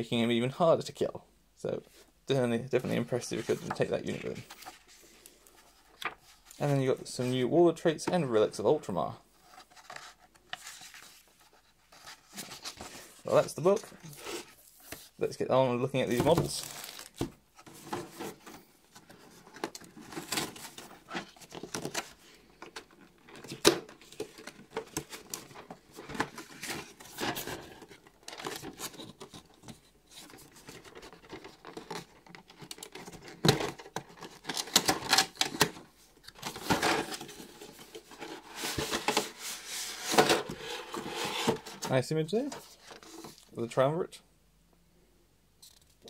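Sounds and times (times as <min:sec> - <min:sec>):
cardboard rubbing and crinkling: 0:36.4 - 0:43.5.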